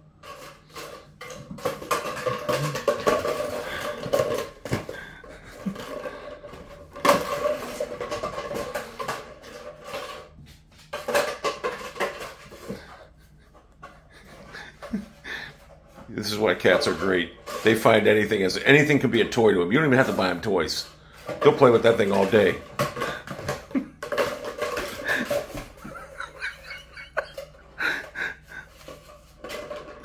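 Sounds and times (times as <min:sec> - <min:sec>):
paper towel roll rolling on floor: 0:00.0 - 0:30.0.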